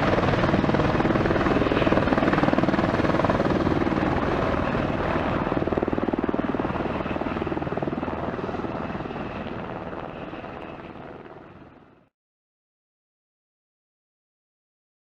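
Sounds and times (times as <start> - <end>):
helicopter rotor beating: 0.0 - 12.0
helicopter engine whine: 0.0 - 12.1.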